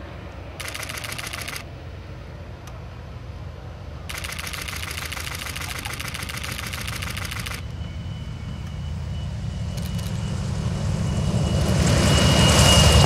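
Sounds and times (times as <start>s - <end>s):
radial aircraft engine running: 0.0s - 13.0s
rapid clicking: 4.1s - 7.6s.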